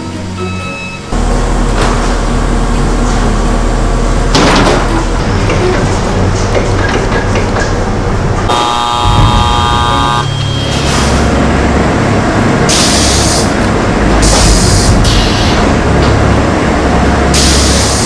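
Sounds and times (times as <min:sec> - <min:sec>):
factory machinery humming: 0:00.0 - 0:18.0
machine warning horn blare: 0:08.5 - 0:11.4.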